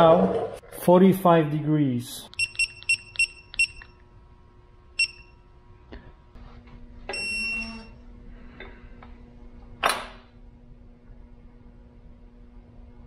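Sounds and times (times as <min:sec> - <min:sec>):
torque wrench beeping: 0:02.3 - 0:04.0, 0:05.0 - 0:05.4, 0:07.1 - 0:08.0.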